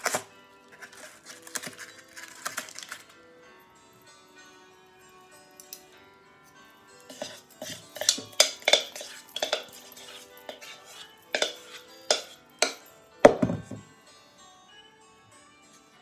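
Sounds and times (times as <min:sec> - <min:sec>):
background music: 0:00.0 - 0:16.0
metal spoon clinking against bowl: 0:07.0 - 0:13.4.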